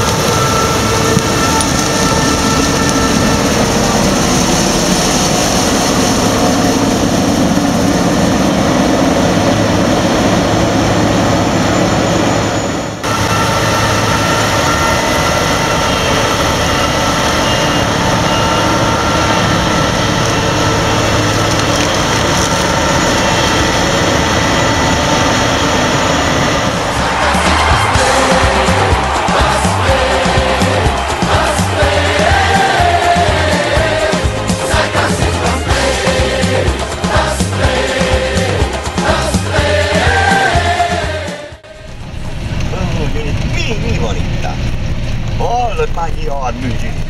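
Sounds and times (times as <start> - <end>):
combine harvester running: 0.0 - 47.0.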